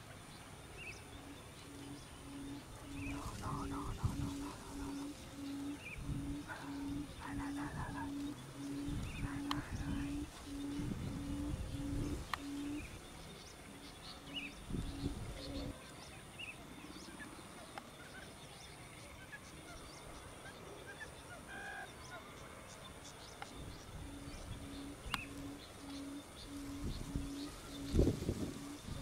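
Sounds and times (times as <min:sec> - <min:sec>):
low hooting bird call: 0:00.8 - 0:15.9, 0:23.6 - 0:29.0
small bird chirps: 0:00.8 - 0:16.6.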